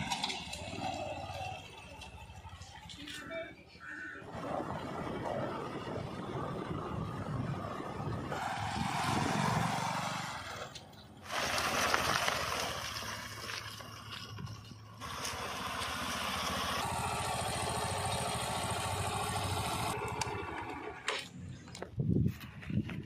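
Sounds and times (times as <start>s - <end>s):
motorcycle engine running: 15.0s - 21.3s.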